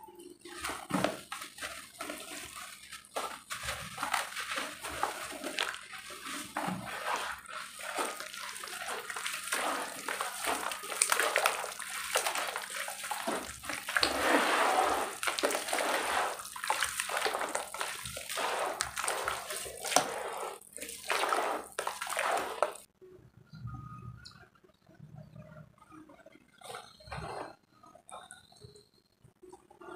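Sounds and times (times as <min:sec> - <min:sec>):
mud squelching and sloshing: 0:00.5 - 0:22.9
dirt dropping into water: 0:03.2 - 0:22.9.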